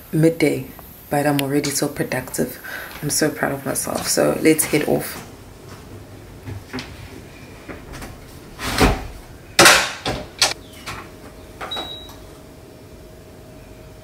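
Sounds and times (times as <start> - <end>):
washing machine door knocks: 7.7 - 10.6
control panel beep: 11.7 - 12.2.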